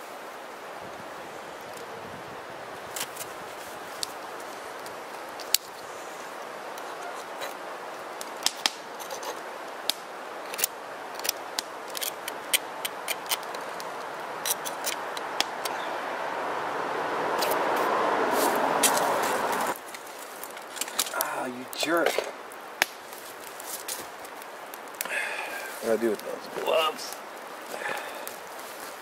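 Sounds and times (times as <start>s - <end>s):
wind noise: 0.0s - 8.0s.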